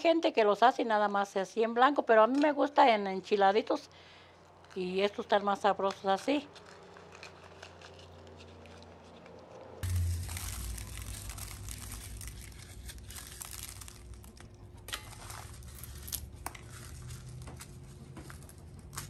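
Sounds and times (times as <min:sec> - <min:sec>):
dry chile skins crackling: 0:04.1 - 0:19.0
low steady rumble: 0:09.8 - 0:19.0.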